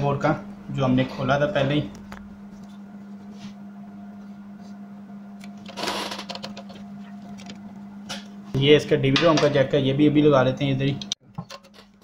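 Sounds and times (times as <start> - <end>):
steady low hum: 0.0 - 11.7.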